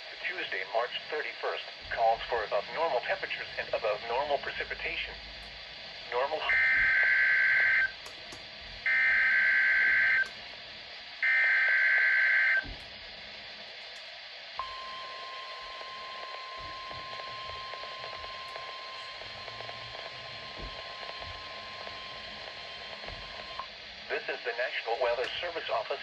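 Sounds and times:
warning alarm tone: 0:06.4 - 0:07.9, 0:08.8 - 0:10.3, 0:14.6 - 0:23.7.

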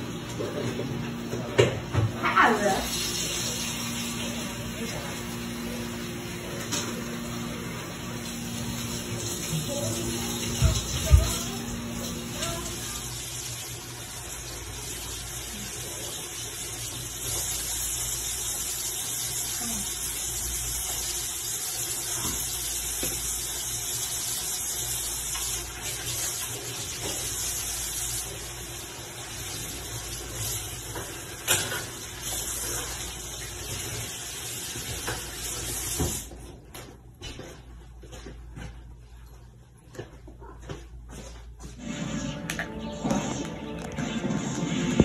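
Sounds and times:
tap running into sink: 0:08.2 - 0:12.9, 0:34.7 - 0:36.4.

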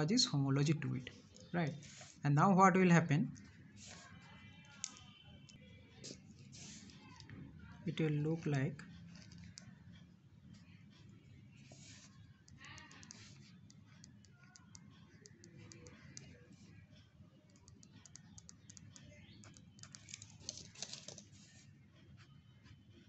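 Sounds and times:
pen scratching on paper: 0:01.7 - 0:02.2, 0:03.4 - 0:05.1, 0:06.0 - 0:07.2, 0:11.6 - 0:16.4.

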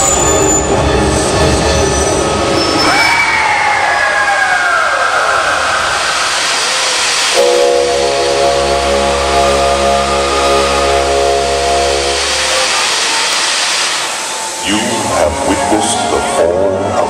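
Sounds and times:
steam jets hissing: 0:00.0 - 0:17.0
low rumble: 0:05.3 - 0:16.5
deep loud sustained tone: 0:05.4 - 0:17.0.

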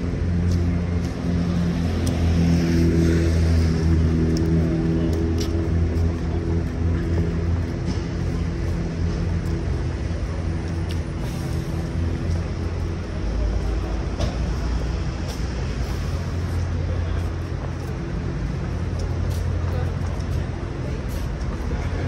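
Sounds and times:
street traffic: 0:00.0 - 0:22.0
vehicle engine humming: 0:00.0 - 0:22.0.

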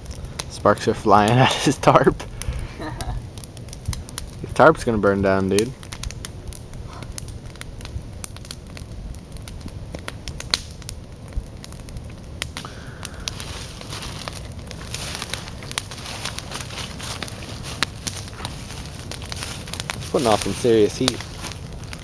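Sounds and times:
campfire crackling and popping: 0:00.0 - 0:22.0.

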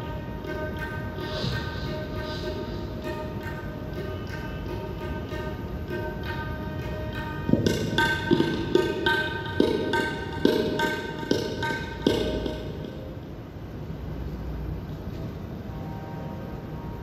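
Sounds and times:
rhythmic ringing drum strokes: 0:00.0 - 0:13.2
quiet steady music background: 0:00.0 - 0:17.0.

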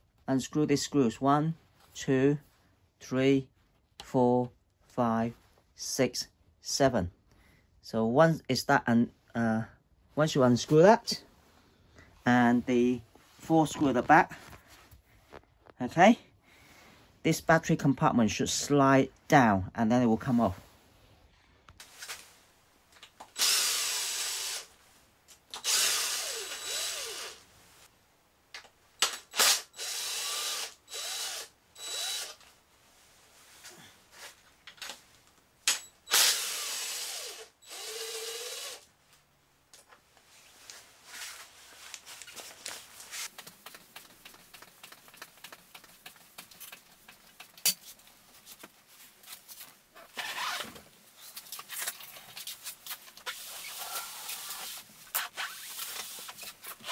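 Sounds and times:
cordless drill spinning screws: 0:23.3 - 0:24.7, 0:25.5 - 0:27.4, 0:29.0 - 0:32.5, 0:35.7 - 0:38.9, 0:53.3 - 0:56.9
clicks and rattles of parts: 0:42.2 - 0:48.8.

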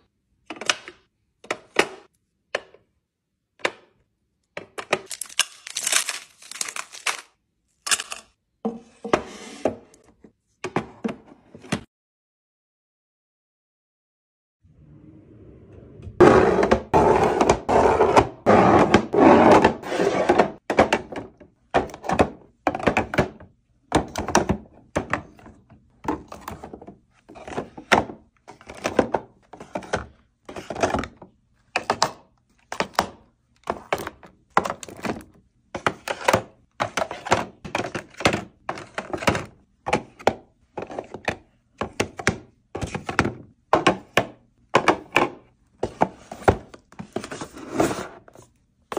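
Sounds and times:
boxes tapping into plastic bins: 0:20.3 - 0:47.5.

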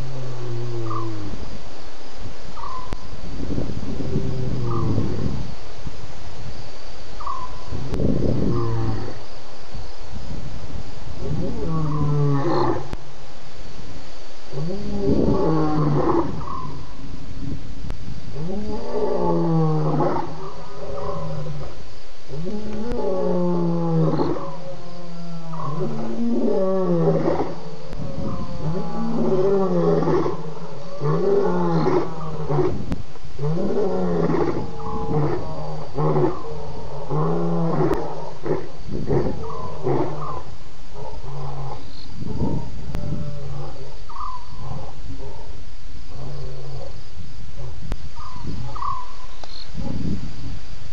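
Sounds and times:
lions roaring: 0:00.0 - 0:01.4, 0:04.0 - 0:05.4, 0:11.2 - 0:13.0, 0:14.5 - 0:16.8, 0:18.4 - 0:21.7, 0:22.3 - 0:40.4.

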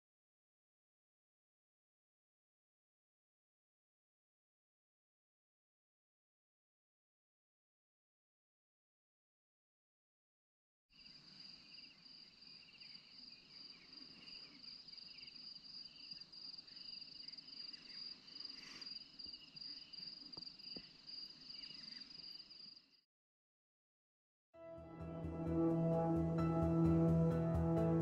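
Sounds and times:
insects trilling: 0:11.0 - 0:23.0.

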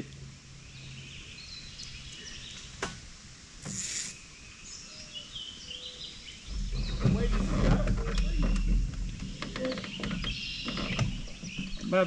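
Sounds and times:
birds chirping: 0:00.0 - 0:03.0, 0:03.6 - 0:12.0
short rustling hiss: 0:03.6 - 0:04.3.

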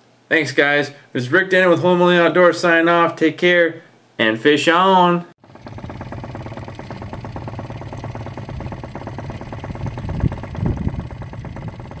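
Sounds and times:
boat engine running: 0:05.4 - 0:12.0
low thumps: 0:05.6 - 0:12.0.

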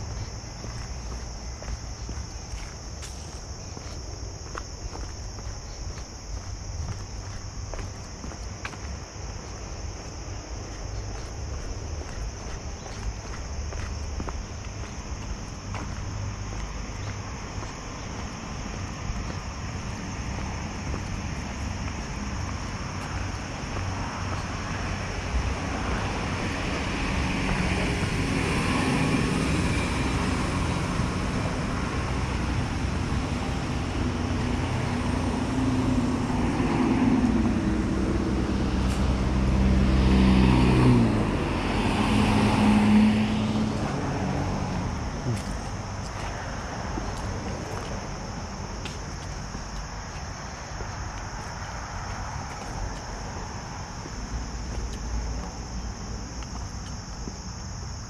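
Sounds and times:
cars on road: 0:00.0 - 0:58.0
vehicle passing close: 0:14.9 - 0:48.7.

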